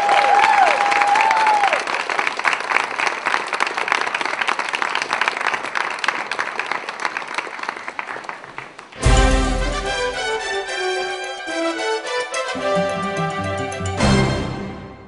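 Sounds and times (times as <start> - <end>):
audience applauding: 0.0 - 11.1
music: 9.0 - 15.0.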